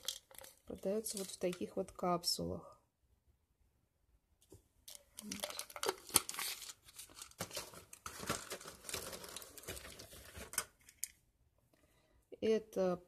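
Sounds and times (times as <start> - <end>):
packaging crinkling: 4.9 - 11.1.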